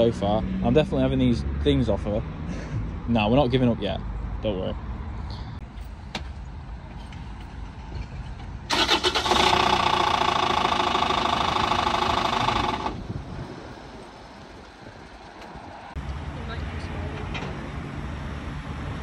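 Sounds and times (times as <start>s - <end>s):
diesel engine cranking: 7.6s - 13.3s
diesel engine running loudly: 8.7s - 13.1s.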